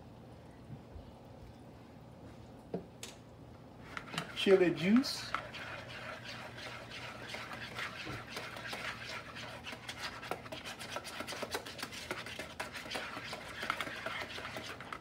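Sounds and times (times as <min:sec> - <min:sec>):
utensil stirring in a dish: 0:03.8 - 0:15.0.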